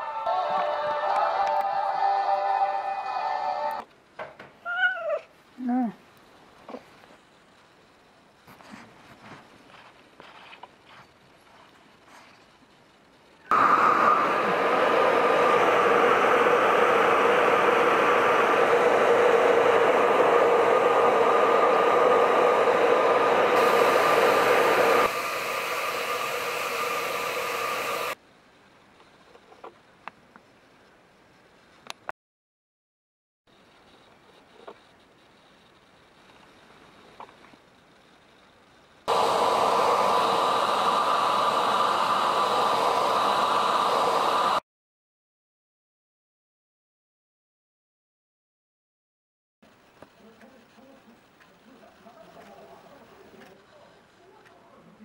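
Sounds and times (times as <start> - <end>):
hair dryer blowing: 13.5 - 28.2, 39.1 - 44.6.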